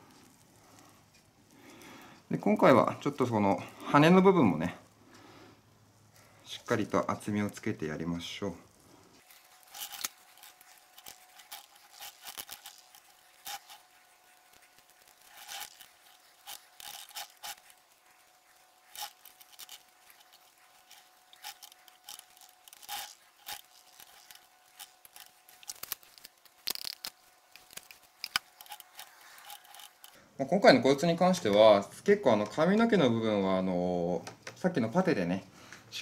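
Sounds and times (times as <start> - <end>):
paint brush scraping and dabbing: 9.2 - 30.2.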